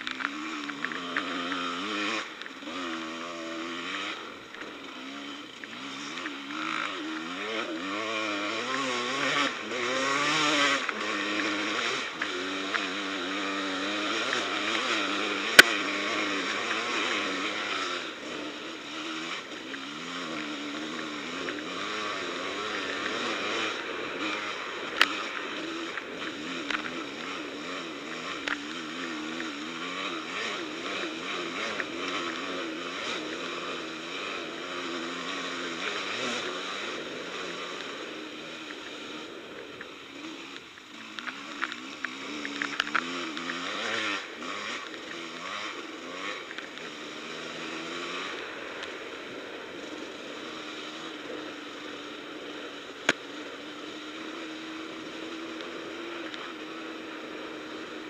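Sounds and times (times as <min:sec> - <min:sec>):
quad engine revving: 0:00.0 - 0:58.0.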